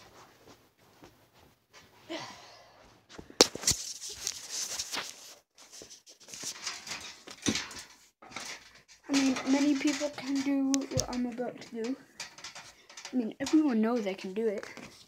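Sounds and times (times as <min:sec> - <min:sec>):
rustling and small taps: 0:03.1 - 0:15.0.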